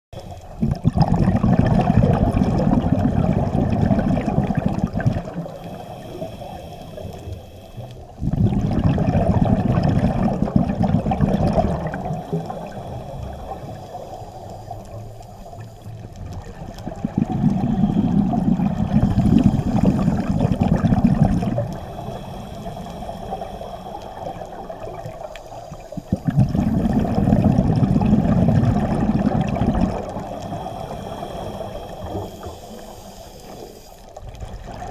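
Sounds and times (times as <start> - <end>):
regulator bubbles underwater: 0.2 - 34.9
regulator inhalation hiss: 5.3 - 8.2, 11.9 - 16.1, 17.4 - 26.5, 30.0 - 34.2.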